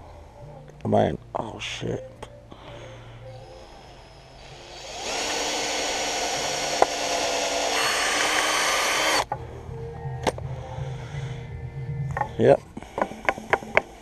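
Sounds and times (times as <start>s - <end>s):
electric drill boring wood: 4.2s - 9.3s.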